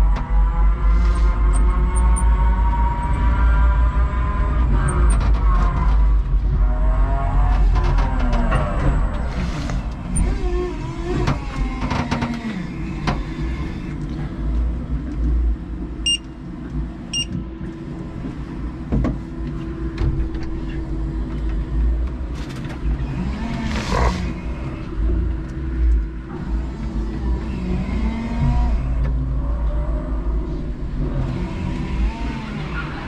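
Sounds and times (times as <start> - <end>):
forklift motor humming: 0.0 - 33.0
short electronic beeps: 16.0 - 16.2, 17.1 - 17.3.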